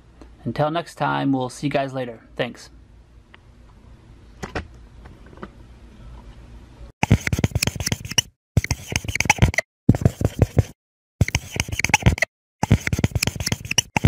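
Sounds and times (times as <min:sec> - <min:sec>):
marker scratching and squeaking: 0:07.0 - 0:14.0.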